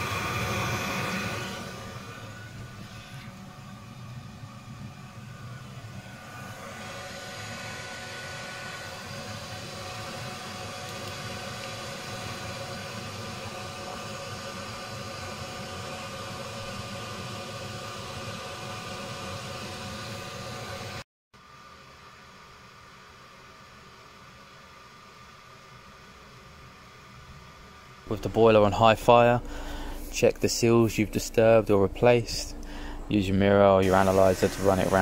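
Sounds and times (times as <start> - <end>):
boiler fan whirring: 0.0 - 35.0.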